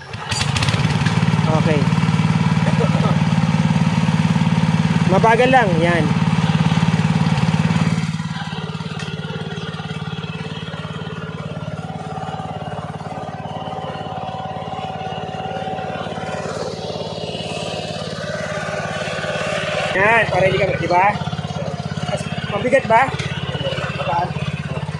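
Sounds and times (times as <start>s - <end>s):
hand tractor engine running: 0.0s - 24.9s.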